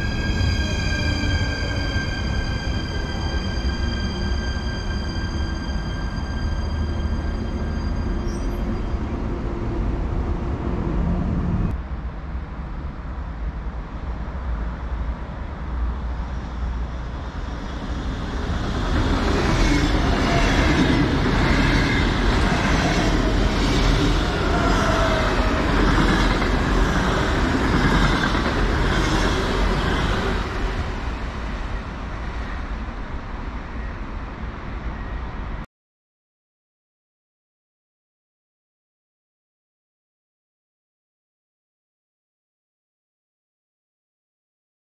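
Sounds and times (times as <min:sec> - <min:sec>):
approaching train: 0:00.0 - 0:35.7
electric train passing at speed: 0:00.0 - 0:35.7.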